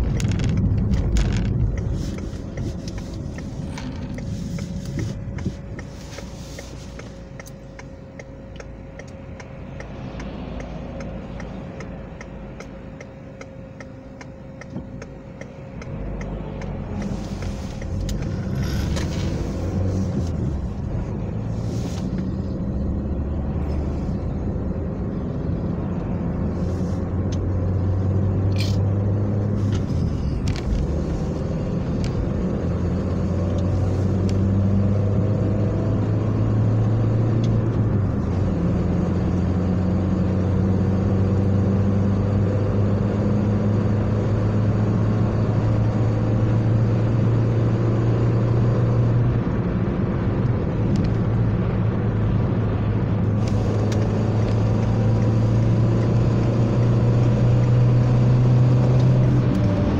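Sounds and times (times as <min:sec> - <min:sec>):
turn signal ticking: 0:00.0 - 0:26.4, 0:27.0 - 0:39.6
car engine and tyre noise: 0:00.0 - 0:59.9.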